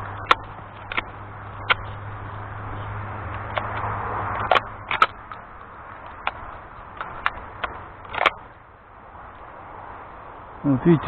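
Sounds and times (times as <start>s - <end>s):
shotgun action clicking: 3.4s - 5.4s, 6.0s - 8.4s.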